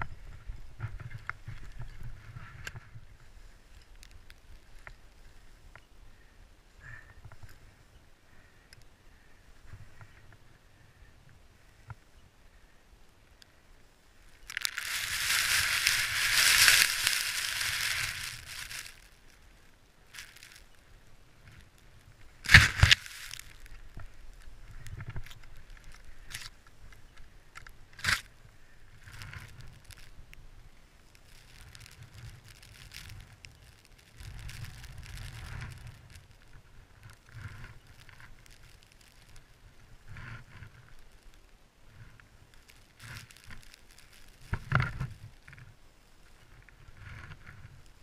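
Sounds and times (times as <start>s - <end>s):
wind rumbling on microphone: 0.0s - 8.0s, 14.2s - 48.0s
gear rustling in snow: 14.2s - 27.1s, 30.8s - 45.6s
clothing rustling and scraping: 14.5s - 19.1s.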